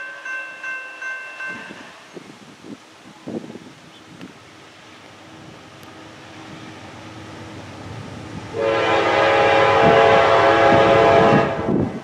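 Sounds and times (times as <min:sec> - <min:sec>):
low rumble of freight train: 0:00.0 - 0:12.0
locomotive air horn blast: 0:08.5 - 0:11.9.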